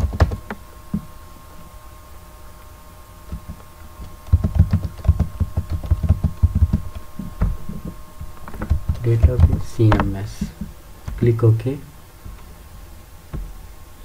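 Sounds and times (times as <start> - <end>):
keyboard typing: 0.0 - 0.6, 4.3 - 7.1
faint steady whine: 0.0 - 14.0.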